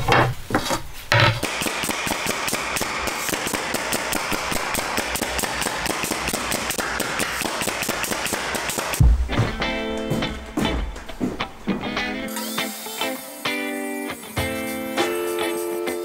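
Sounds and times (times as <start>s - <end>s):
pneumatic nail gun firing: 1.4s - 9.0s, 12.3s - 16.0s.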